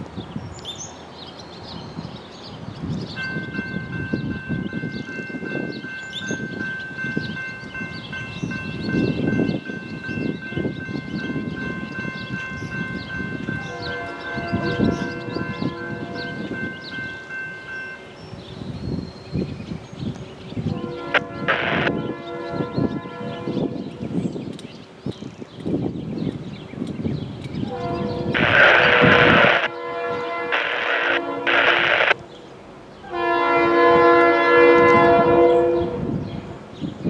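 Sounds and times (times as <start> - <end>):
birds chirping: 0.2 - 37.0
crossing warning bell ringing: 3.1 - 19.5
train horn: 13.0 - 17.2, 20.6 - 24.2, 27.6 - 32.3, 33.0 - 36.5.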